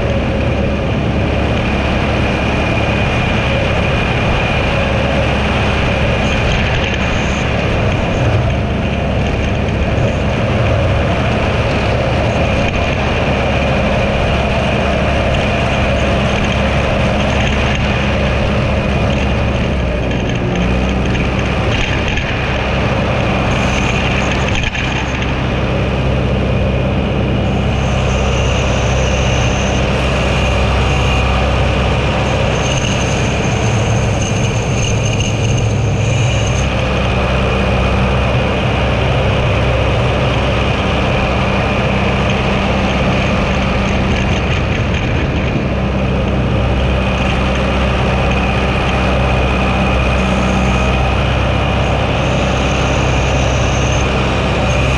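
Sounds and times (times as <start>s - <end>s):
tractor engine droning: 0.0s - 54.9s.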